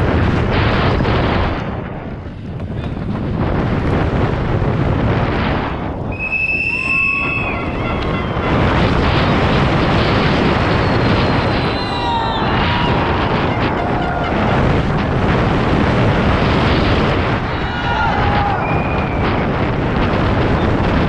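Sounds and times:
mountain bike rumble and rattle: 0.0s - 21.0s
wind rushing on microphone: 0.0s - 21.0s
spectators shouting: 6.3s - 15.8s, 16.6s - 19.6s.

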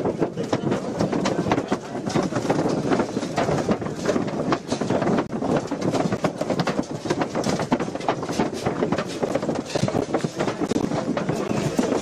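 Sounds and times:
crowd commotion: 0.0s - 12.0s.

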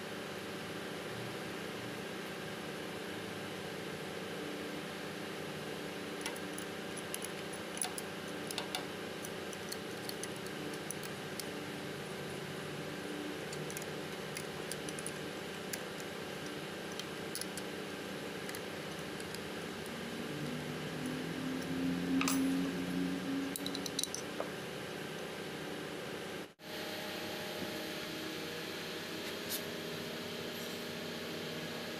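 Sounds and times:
steady hum: 0.0s - 31.9s
ratchet wrench clicking: 6.2s - 11.1s.

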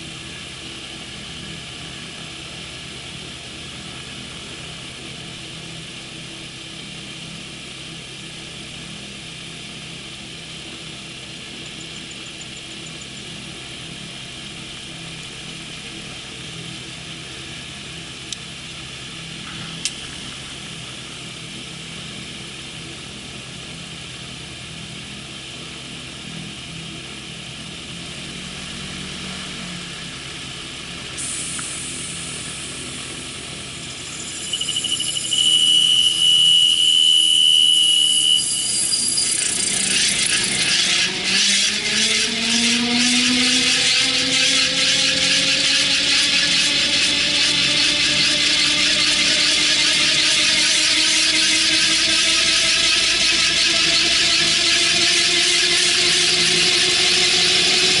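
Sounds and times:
aircraft engine running: 0.0s - 58.0s
whine rising in pitch: 28.1s - 58.0s
high steady beep: 33.9s - 40.0s.

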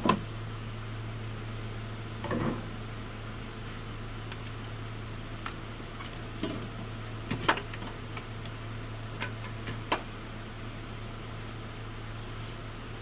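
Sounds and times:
steady low hum: 0.0s - 13.0s
clicks and knocks of car parts: 7.3s - 8.3s, 9.2s - 10.1s.

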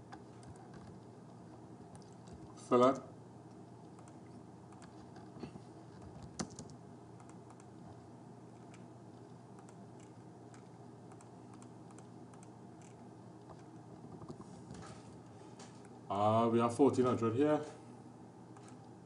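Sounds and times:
low steady hum: 0.0s - 19.0s
keyboard typing and clicking: 3.8s - 5.3s, 6.0s - 7.7s, 8.7s - 14.4s.

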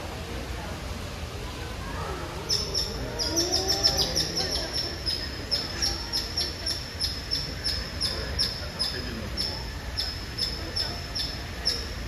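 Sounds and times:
bird chirping: 2.5s - 12.0s.

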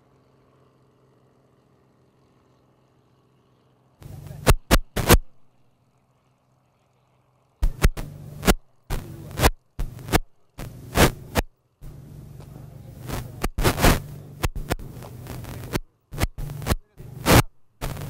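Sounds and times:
low steady hum: 0.0s - 18.0s
loud irregular crackles: 4.0s - 5.5s, 7.6s - 18.0s.

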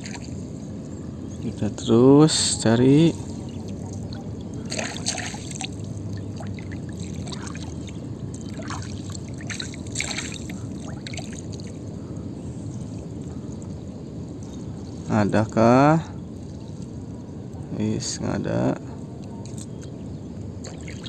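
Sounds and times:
low background noise: 0.0s - 21.0s
water splashing off a net: 4.7s - 7.8s, 8.5s - 11.7s.

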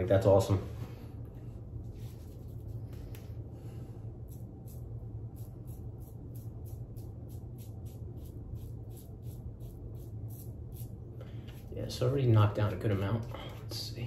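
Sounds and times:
steady low hum: 0.0s - 14.0s
razor scraping stubble: 4.2s - 11.7s.

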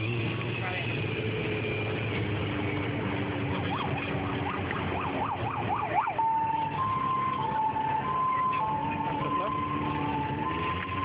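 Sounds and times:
electronic siren wailing: 3.5s - 11.0s.

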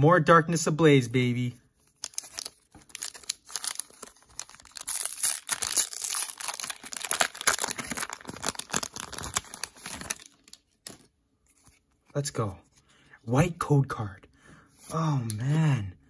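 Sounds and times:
foil wrapper crinkling and tearing: 1.9s - 11.1s.

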